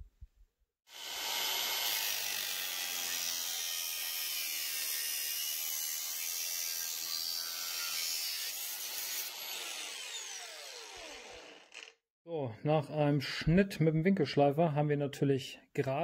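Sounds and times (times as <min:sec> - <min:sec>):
angle grinder cutting steel pipe: 0:00.9 - 0:12.0.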